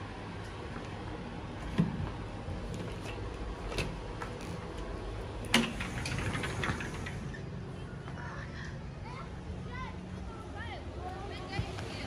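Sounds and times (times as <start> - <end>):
sliding door click: 5.4 - 7.4.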